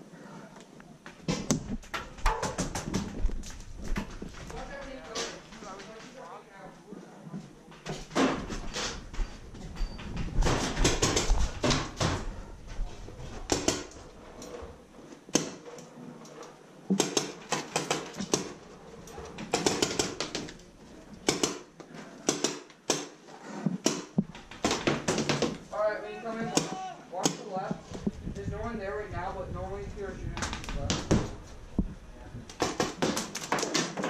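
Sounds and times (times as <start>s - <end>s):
paintball markers firing: 13.5s - 14.0s, 21.2s - 23.2s.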